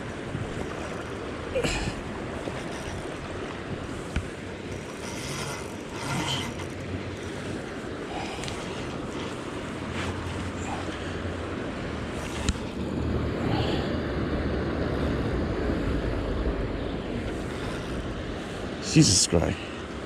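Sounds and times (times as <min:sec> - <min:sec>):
river flowing: 0:00.0 - 0:20.0
wind: 0:00.0 - 0:20.0
fishing reel winding: 0:04.7 - 0:07.4.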